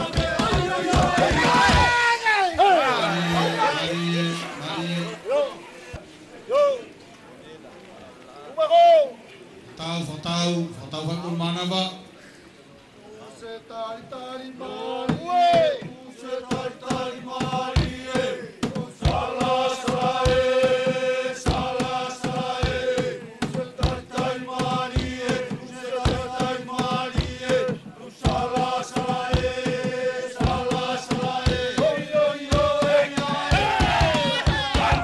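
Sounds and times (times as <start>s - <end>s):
sharp percussive beats: 0.0s - 2.0s, 15.1s - 35.0s
group of voices chanting: 0.0s - 5.7s, 14.2s - 35.0s.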